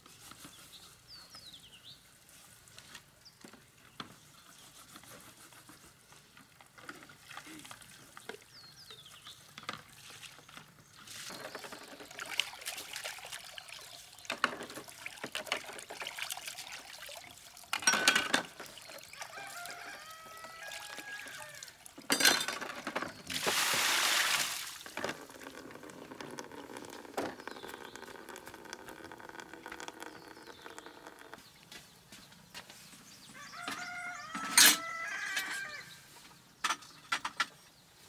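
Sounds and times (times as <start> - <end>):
water pouring onto ground: 11.0 - 22.2, 23.2 - 31.4
hands washing in basin: 23.2 - 25.5.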